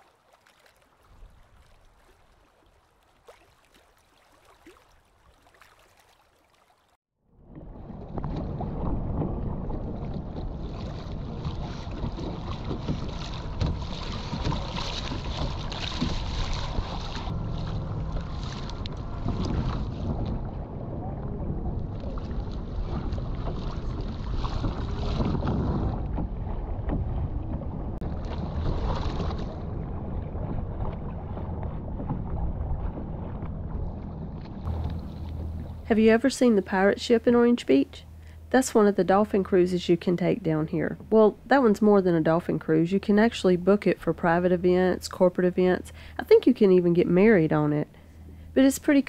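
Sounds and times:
water splashing against hull: 0.0 - 49.0
wind buffeting microphone: 7.5 - 38.5.

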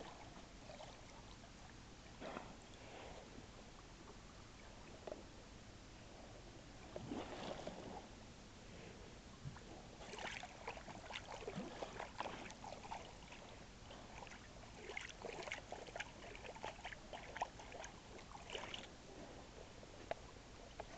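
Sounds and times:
water lapping against canoe hull: 6.8 - 8.2, 9.4 - 20.9.

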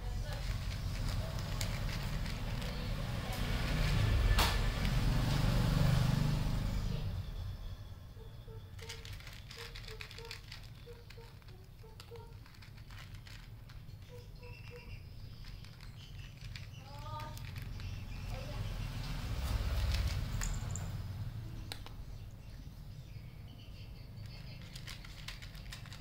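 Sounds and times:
cat crunching dry kibble: 0.0 - 5.3, 8.7 - 14.1, 14.7 - 18.2, 19.5 - 20.7, 24.3 - 26.0.

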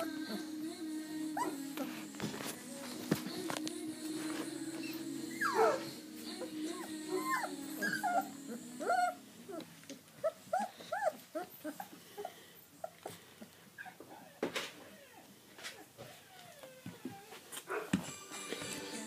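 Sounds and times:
puppies whimpering and squeaking: 1.4 - 1.9, 4.7 - 17.6.

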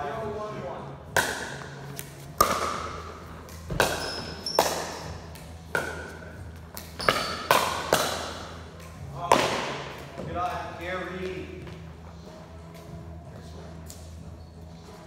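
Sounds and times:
paddles striking plastic ball: 1.1 - 10.0.

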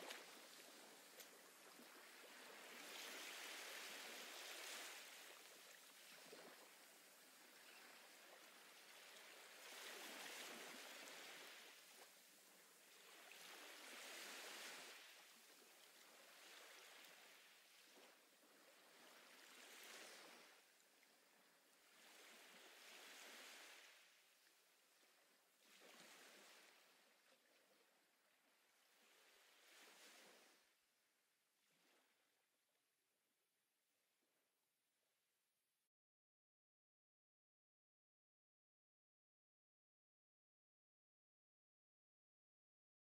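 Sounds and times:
faint ocean waves washing: 0.0 - 27.7, 28.7 - 30.8.

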